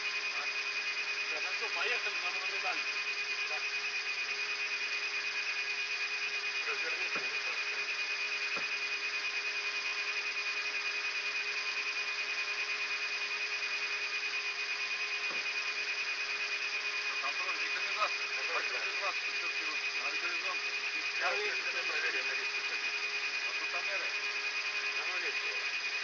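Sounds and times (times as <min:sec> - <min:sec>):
high whine: 0:00.0 - 0:26.0.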